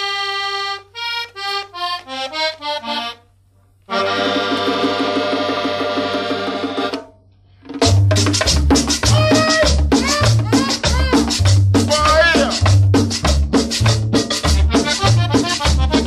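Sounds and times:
solo accordion: 0.0s - 7.0s, 14.3s - 16.0s.

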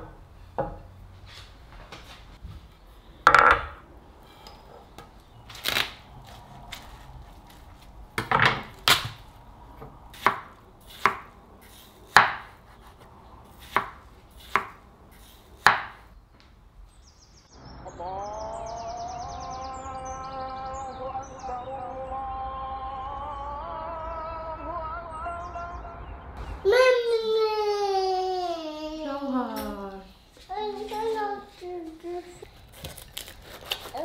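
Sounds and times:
knife slicing watermelon: 32.7s - 34.0s.

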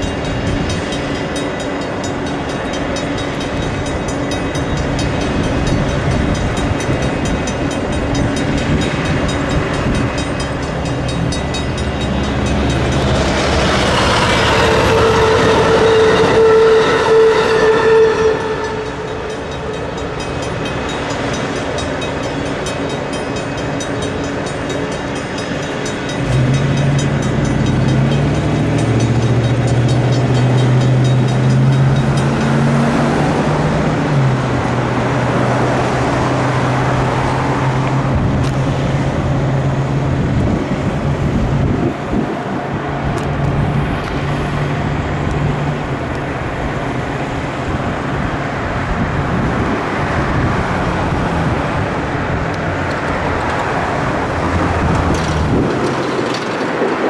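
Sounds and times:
crossing bells ringing: 0.0s - 37.2s
train wheels rumbling on rails: 0.0s - 57.0s.

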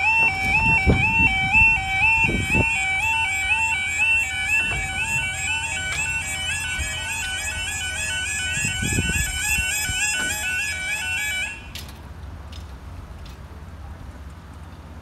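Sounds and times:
two-tone level crossing alarm: 0.0s - 12.0s.

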